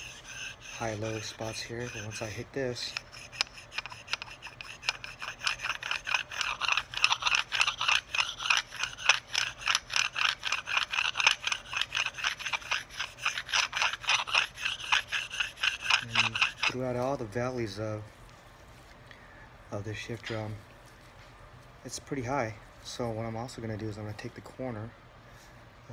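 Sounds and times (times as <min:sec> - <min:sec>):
sharpening stone scraping metal: 0:00.0 - 0:16.8.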